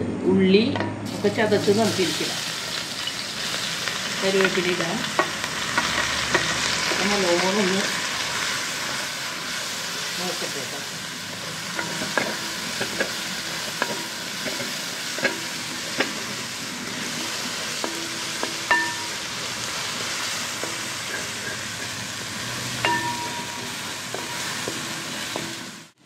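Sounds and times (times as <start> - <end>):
food sizzling in hot oil: 1.0 - 26.0
wooden spatula knocking on metal pan: 17.8 - 19.3, 22.8 - 25.7.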